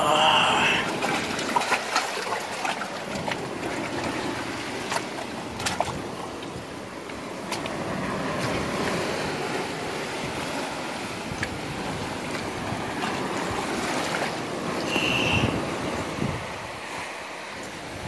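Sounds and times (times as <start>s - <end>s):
surf washing over rocks: 0.0s - 18.0s
wind on microphone: 7.6s - 17.2s, 17.8s - 18.0s.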